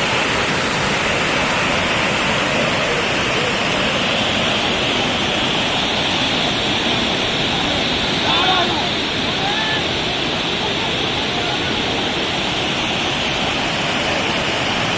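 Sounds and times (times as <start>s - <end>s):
waterfall rushing over rocks: 0.0s - 14.9s.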